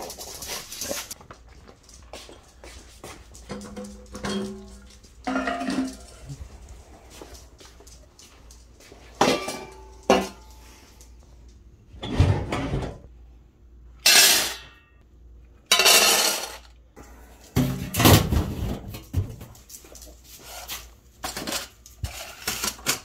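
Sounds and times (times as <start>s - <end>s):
steel bowls clanking: 3.6s - 6.2s.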